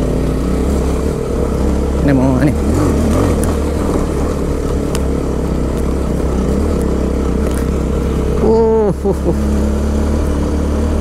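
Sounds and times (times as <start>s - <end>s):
motorcycle engine running: 0.0s - 11.0s
person saying oh: 8.4s - 9.4s.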